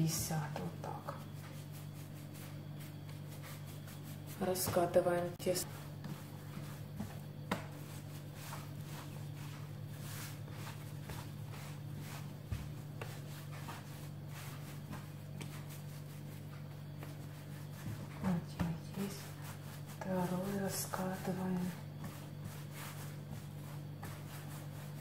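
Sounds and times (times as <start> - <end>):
hands rolling dough: 0.0 - 25.0
steady low hum: 0.0 - 25.0.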